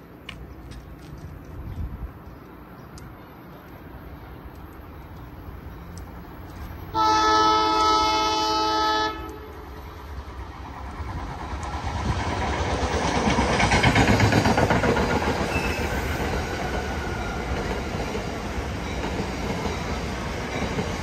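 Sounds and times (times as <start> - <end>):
train rumble: 0.1 - 21.0
train horn blast: 6.9 - 9.9.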